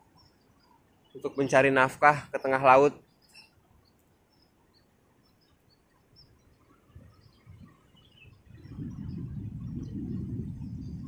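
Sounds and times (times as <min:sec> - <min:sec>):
faint bird chirps: 0:00.0 - 0:11.0.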